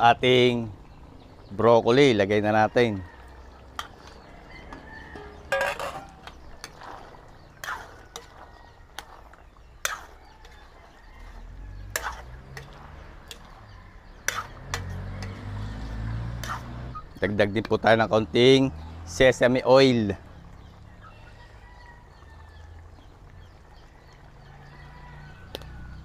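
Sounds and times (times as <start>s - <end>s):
metal spatula scraping a wok: 3.7s - 17.0s.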